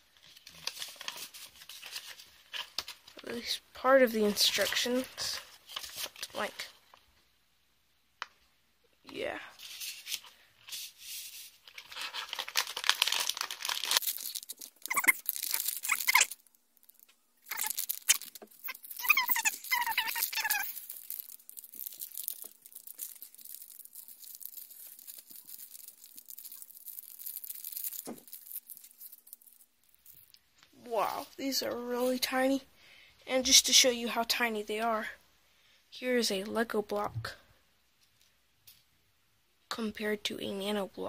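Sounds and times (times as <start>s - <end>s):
plastic bag crinkling and tearing: 0.1s - 6.8s, 9.6s - 30.4s
plastic bags rustling: 9.6s - 30.4s
squeaky rubbing: 14.1s - 16.4s, 17.4s - 22.4s.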